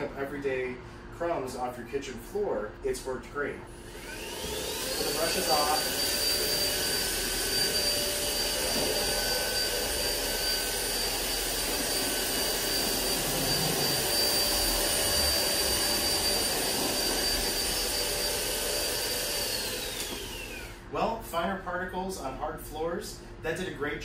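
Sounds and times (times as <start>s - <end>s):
vacuum cleaner motor whine: 3.8s - 20.9s.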